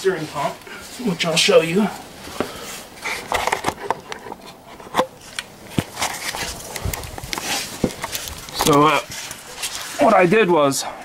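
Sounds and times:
camera handling noise: 3.0s - 9.8s.

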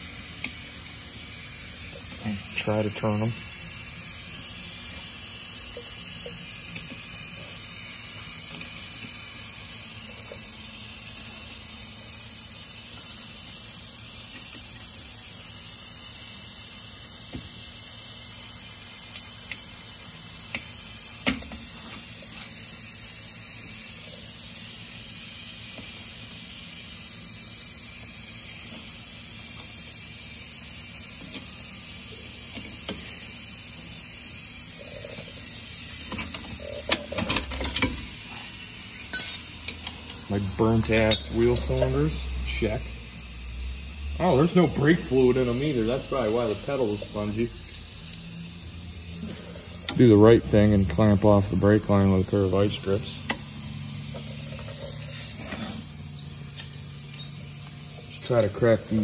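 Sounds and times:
metal clanks and clinks: 56.6s - 57.5s.

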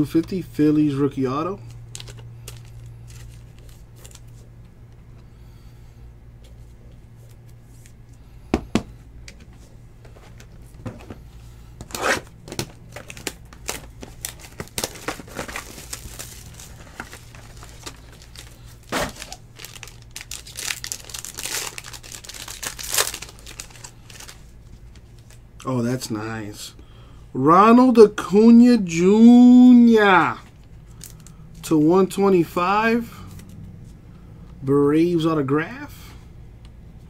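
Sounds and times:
foil pack tearing and crinkling: 1.9s - 4.4s, 11.8s - 25.4s.

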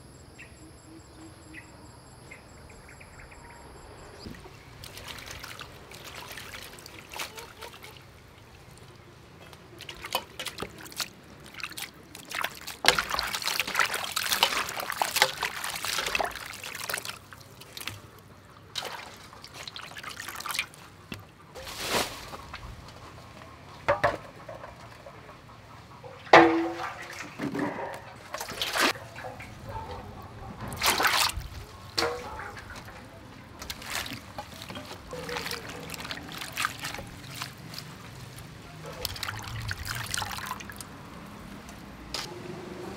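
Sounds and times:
water sloshing in metal bowl: 4.3s - 22.1s, 26.0s - 42.3s.

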